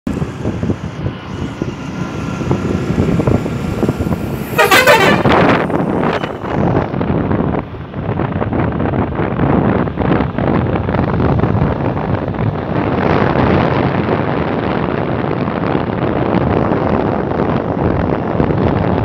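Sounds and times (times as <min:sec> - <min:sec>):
vehicle moving along road: 0:00.0 - 0:19.0
wind buffeting microphone: 0:00.0 - 0:19.0
horn blast: 0:02.0 - 0:06.7.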